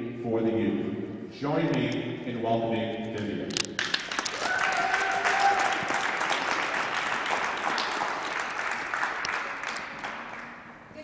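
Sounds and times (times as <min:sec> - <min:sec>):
audience applauding: 0:03.8 - 0:10.8.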